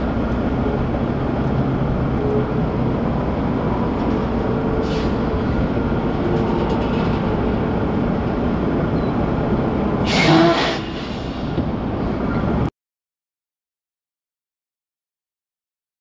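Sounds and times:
truck rumbling with rattling: 0.0 - 12.7
air brake hiss with squeal: 4.8 - 5.3, 10.0 - 11.6.

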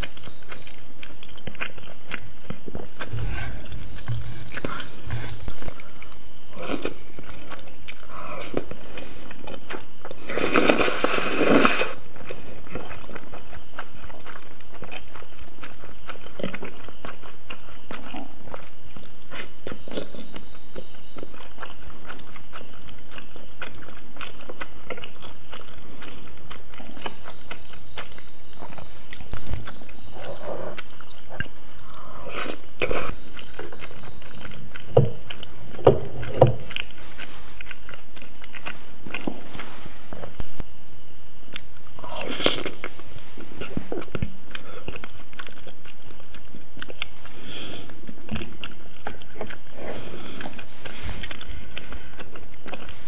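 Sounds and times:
wet chewing: 0.0 - 40.5, 41.2 - 53.0
noodles slurping: 2.6 - 15.1
mouth clicks and smacks: 12.6 - 39.4, 41.5 - 43.0.

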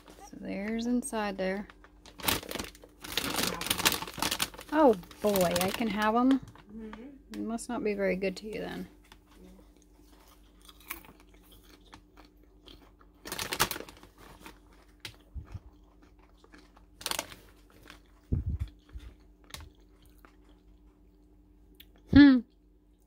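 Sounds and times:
snack bag crinkling: 1.6 - 6.7, 10.1 - 20.9.

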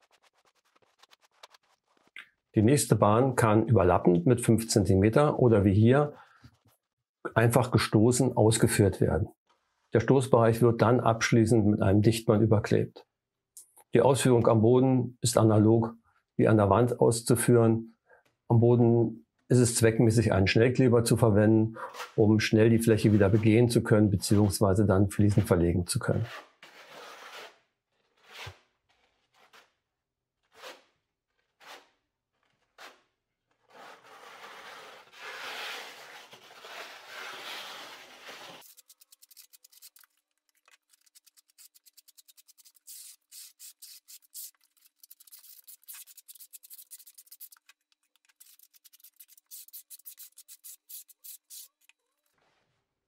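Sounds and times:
trowel scraping adhesive: 40.8 - 52.0.

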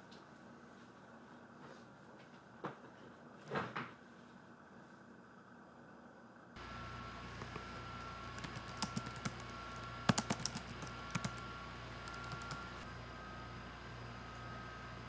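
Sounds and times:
faint steady hum: 0.0 - 15.0
laptop keyboard typing: 7.4 - 11.4, 12.0 - 12.7.

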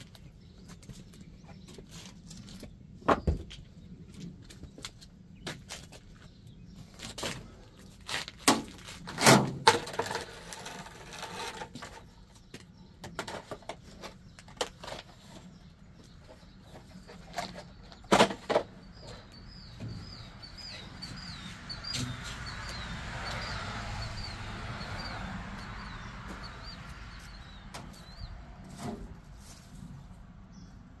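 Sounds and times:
bird chirping: 10.2 - 31.0.

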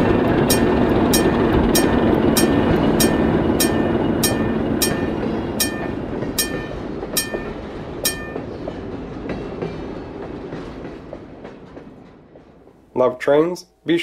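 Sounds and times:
model train cars rumbling: 0.0 - 11.4
wheels clicking over rail joints: 0.0 - 12.6
crossing signal bell dinging: 0.4 - 8.5.

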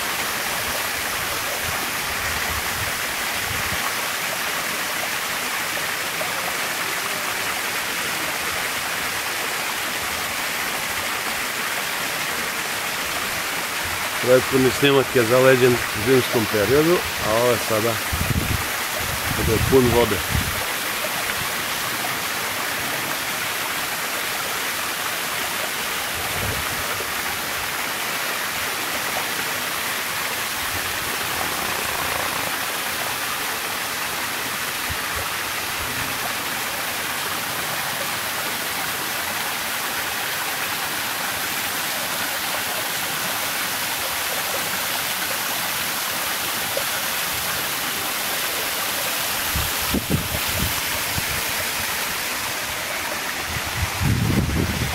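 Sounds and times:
waterfall rushing and splashing: 0.0 - 54.9.

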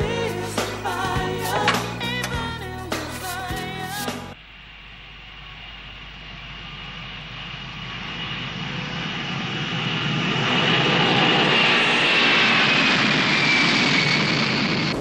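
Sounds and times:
high jet engine whine: 4.4 - 15.0
jet engines on runway: 4.4 - 15.0.

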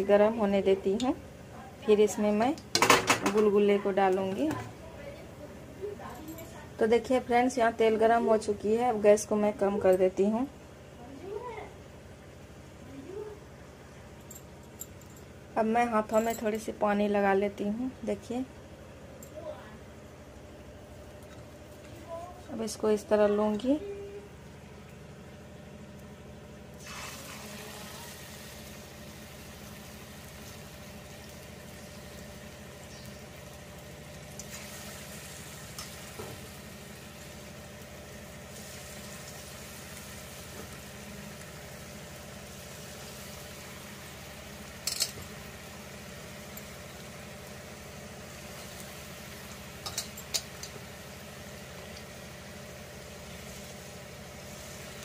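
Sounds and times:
dough balls sizzling in hot oil: 22.7 - 55.0.

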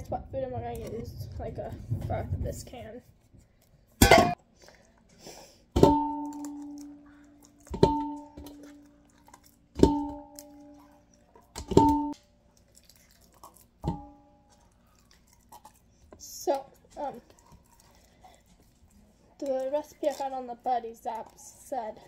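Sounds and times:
ringing steel bowl: 7.8 - 8.8
can striking metal bowl: 9.8 - 10.7.

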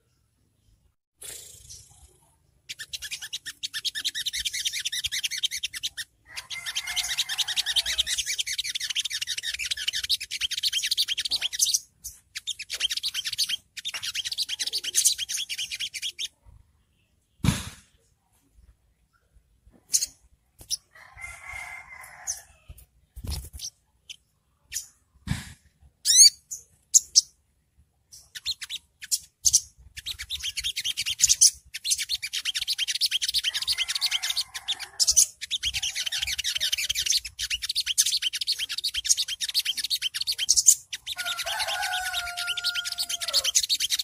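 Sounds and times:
sunbird singing high chips and trills: 1.3 - 16.4, 28.1 - 44.0.

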